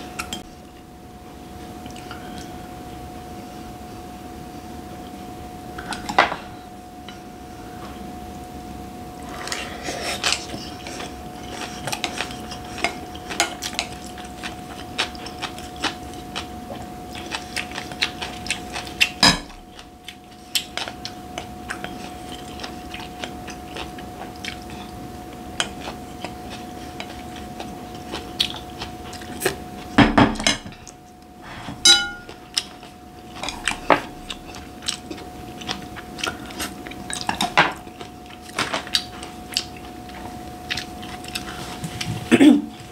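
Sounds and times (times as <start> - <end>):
faint steady hum: 0.0 - 42.9
chewing: 9.2 - 30.0, 32.2 - 42.9
utensils clinking on glass bowl: 31.8 - 32.4.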